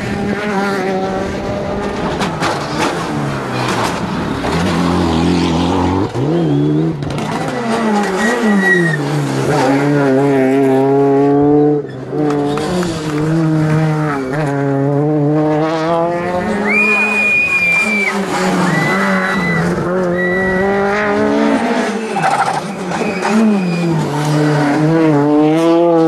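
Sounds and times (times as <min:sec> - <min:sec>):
rally car engines at full throttle: 0:00.0 - 0:26.0
high squeal: 0:08.2 - 0:09.0, 0:16.6 - 0:20.9, 0:21.9 - 0:24.1.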